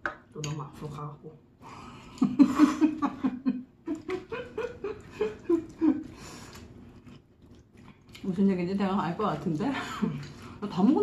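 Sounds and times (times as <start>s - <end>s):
person laughing: 2.2s - 6.1s.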